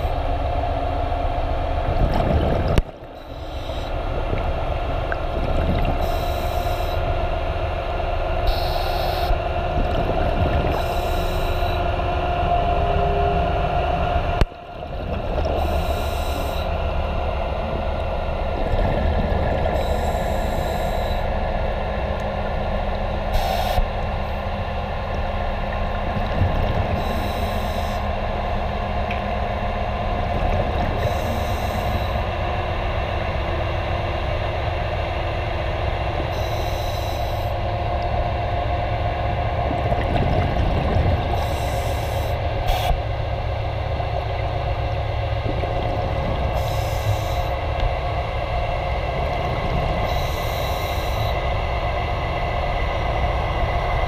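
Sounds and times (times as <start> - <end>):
underwater machinery hum: 0.0 - 54.0
regulator bubbles exhaled: 1.9 - 7.0, 8.4 - 11.9, 17.7 - 21.3, 25.6 - 28.1, 39.4 - 43.0, 44.4 - 52.1.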